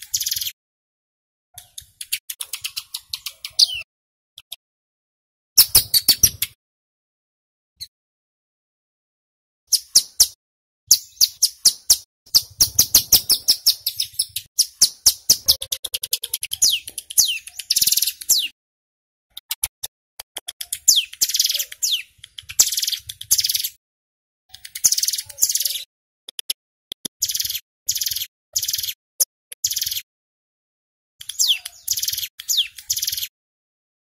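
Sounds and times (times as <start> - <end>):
bird chirping and trilling: 0.0 - 0.6, 1.6 - 3.9, 5.6 - 6.6, 9.7 - 18.6, 20.4 - 23.8, 24.5 - 25.9, 27.2 - 29.0, 29.6 - 30.1, 31.2 - 33.3.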